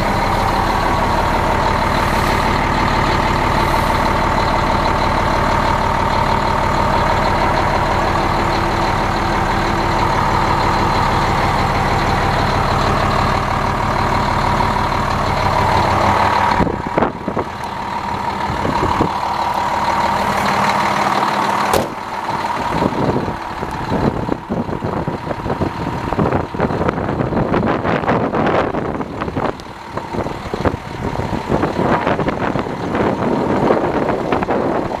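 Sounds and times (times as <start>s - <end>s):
diesel engine idling: 0.0s - 35.0s
sharp knocks: 21.7s - 22.0s.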